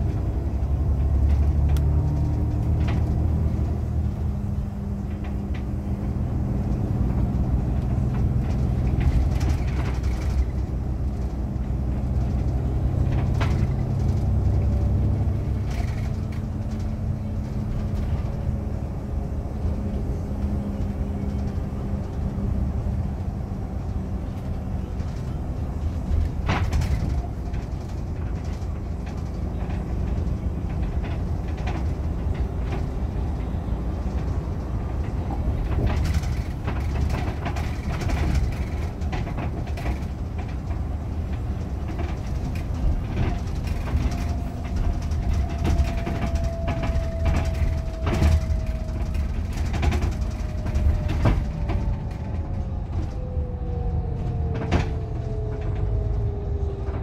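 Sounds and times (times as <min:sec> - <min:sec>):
bus engine and road rumble: 0:00.0 - 0:57.0
sharp knocks and rattles: 0:25.0 - 0:52.8.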